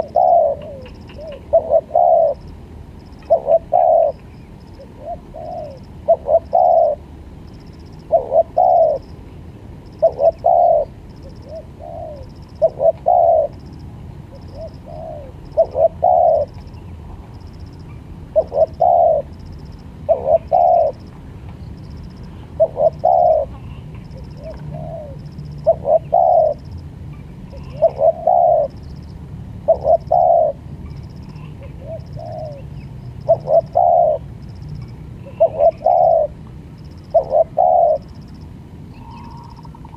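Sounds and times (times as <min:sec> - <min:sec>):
dove cooing: 0:00.0 - 0:02.6, 0:03.2 - 0:07.1, 0:08.0 - 0:09.1, 0:10.0 - 0:13.6, 0:14.3 - 0:16.7, 0:18.3 - 0:19.4, 0:20.0 - 0:21.1, 0:22.5 - 0:26.7, 0:27.5 - 0:28.8, 0:29.6 - 0:34.4, 0:35.2 - 0:38.2, 0:38.9 - 0:39.9.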